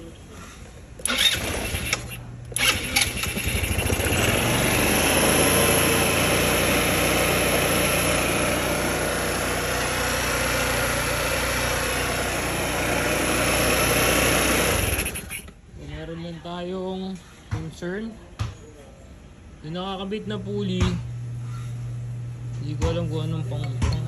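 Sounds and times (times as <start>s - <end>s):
scooter engine starting and idling: 1.0s - 15.6s.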